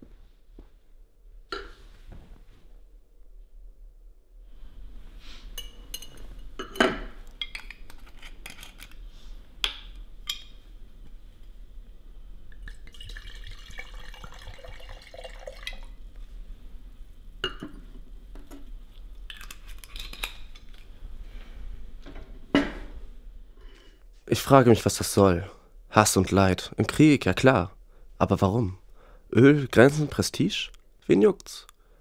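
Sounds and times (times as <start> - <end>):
wine pouring into a glass: 12.6 - 16.0.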